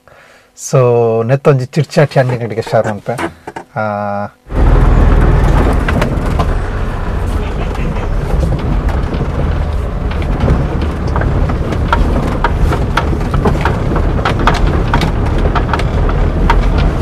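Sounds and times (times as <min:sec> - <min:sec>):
car engine and tyres rumbling: 0:04.5 - 0:17.0
knocks and rattles over bumps: 0:04.5 - 0:17.0.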